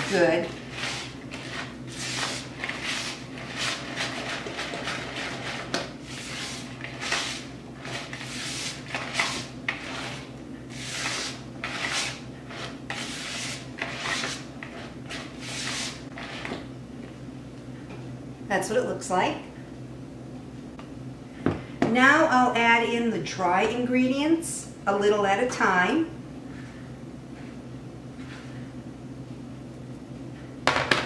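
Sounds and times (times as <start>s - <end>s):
wooden spoon stirring dough: 0.0s - 16.6s.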